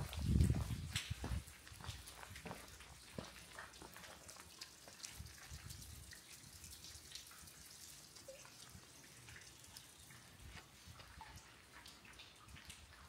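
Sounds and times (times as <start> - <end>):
water dripping: 0.0 - 13.0
pitched water plinks: 8.2 - 12.8.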